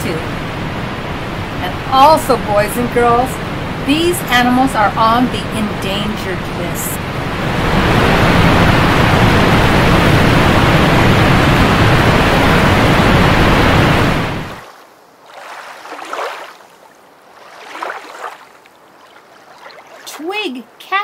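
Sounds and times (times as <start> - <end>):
rushing water: 0.0 - 21.0
soft water swishes: 14.3 - 20.8.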